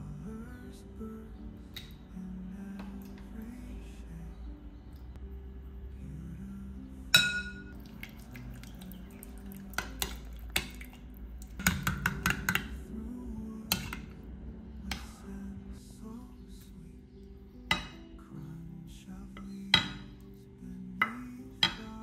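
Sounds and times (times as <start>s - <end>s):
soft background music: 0.0s - 22.0s
metal spoon clinking on glass bowl: 7.2s - 7.7s.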